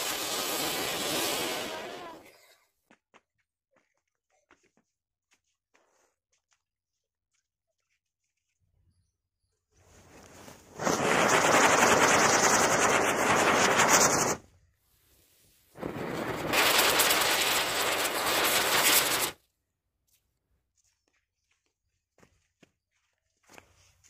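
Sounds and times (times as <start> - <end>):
firework spinner hissing and crackling: 0.0 - 2.3, 10.0 - 14.4, 15.7 - 19.4.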